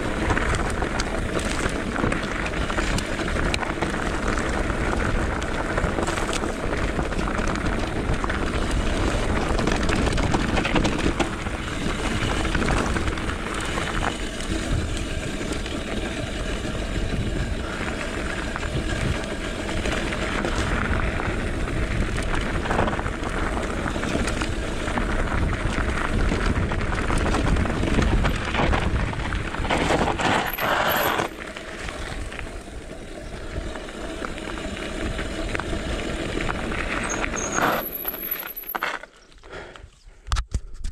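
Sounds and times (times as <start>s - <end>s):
wind rush on microphone: 0.0s - 31.2s
bike rattling: 0.0s - 39.7s
bike tyre rumble on gravel: 0.0s - 40.8s.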